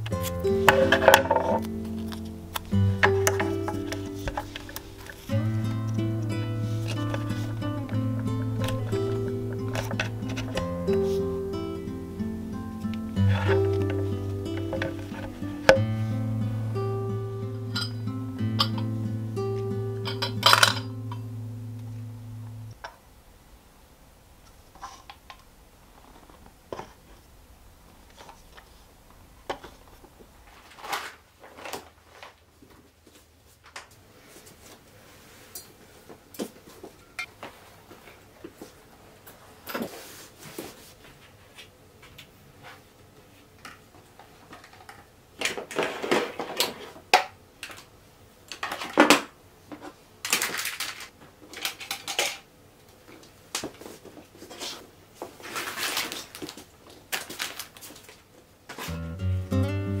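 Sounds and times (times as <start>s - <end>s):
desk items clicking and knocking: 14.6s - 15.8s.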